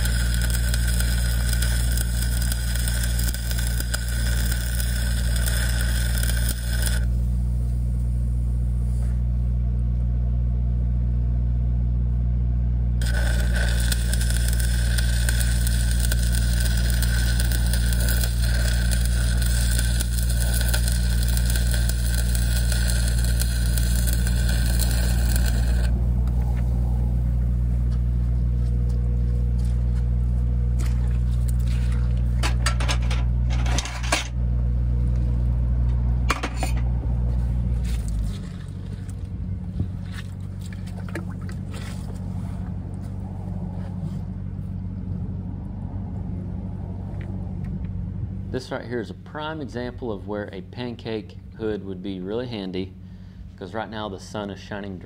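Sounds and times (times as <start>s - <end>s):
welding arc crackling and hissing: 0.0s - 8.1s, 13.0s - 26.0s
low engine hum: 0.0s - 55.0s.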